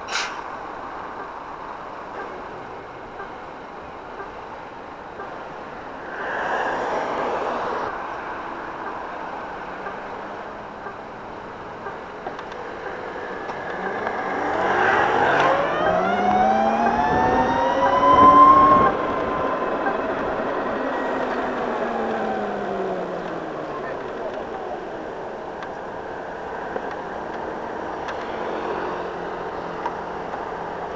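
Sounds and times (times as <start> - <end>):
road noise: 0.0 - 30.9
electric scooter motor whine: 13.0 - 25.2
wind noise: 13.5 - 22.8.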